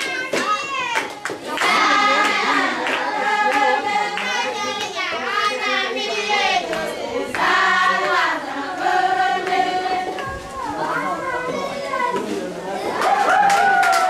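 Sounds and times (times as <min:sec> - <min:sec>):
handclaps: 0:00.0 - 0:05.0, 0:13.0 - 0:14.0
group singing: 0:01.5 - 0:11.2.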